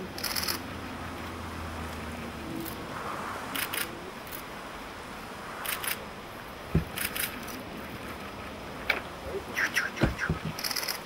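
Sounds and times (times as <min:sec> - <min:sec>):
steady low hiss: 0:00.0 - 0:11.0
low thump: 0:06.7 - 0:07.0.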